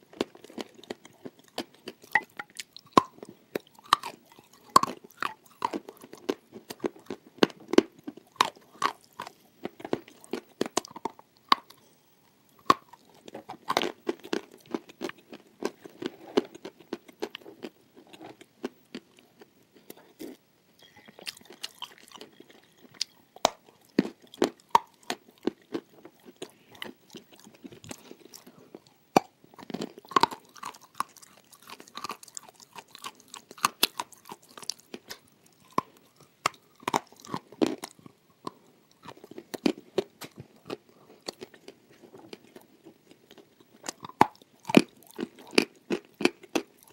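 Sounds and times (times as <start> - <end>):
cookies crunching: 0.0 - 11.9, 12.5 - 46.9
wet chewing: 0.1 - 11.8, 21.2 - 46.9.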